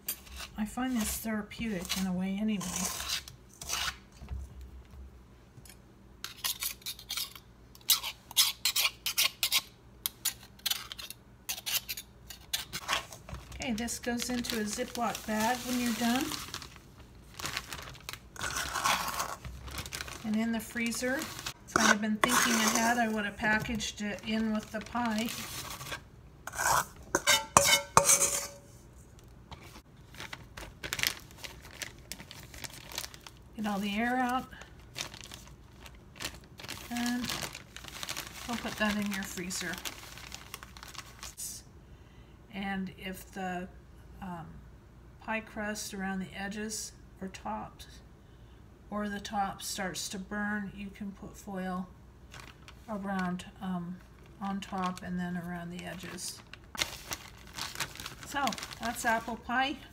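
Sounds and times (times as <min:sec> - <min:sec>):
knife scraping metal blades: 0:06.2 - 0:12.9, 0:26.5 - 0:28.7
plastic bag crinkling: 0:13.4 - 0:26.0, 0:30.0 - 0:41.4, 0:52.3 - 0:53.3, 0:54.0 - 0:59.6
pastry blender scraping in bowl: 0:20.9 - 0:24.6, 0:25.3 - 0:28.4.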